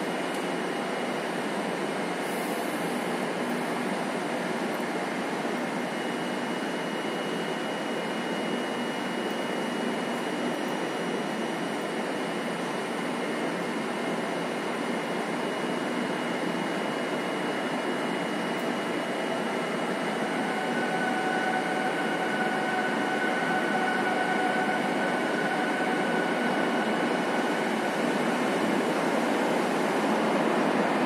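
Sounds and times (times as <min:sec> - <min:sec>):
two-note locomotive whine: 0:05.1 - 0:31.0
train approaching rushing noise: 0:17.6 - 0:31.0.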